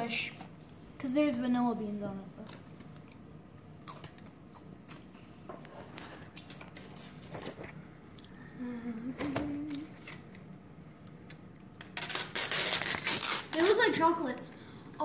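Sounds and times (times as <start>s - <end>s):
person humming: 8.4s - 10.0s
cellophane crinkling: 11.7s - 13.8s.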